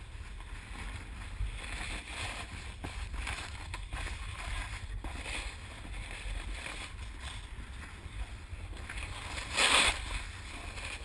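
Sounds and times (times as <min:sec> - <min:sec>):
snowboard sliding over snow: 0:00.0 - 0:11.0.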